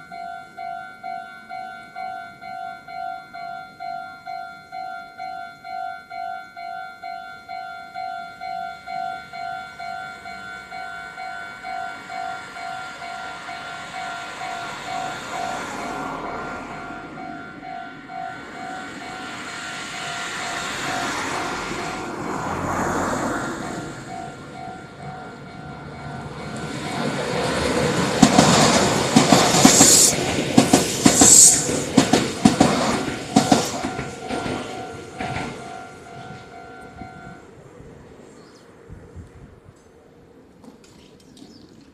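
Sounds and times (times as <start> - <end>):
level crossing warning bell: 0.0 - 28.1, 33.2 - 37.6
train passing: 0.0 - 41.9
wheels clacking over rail joints: 7.9 - 37.3.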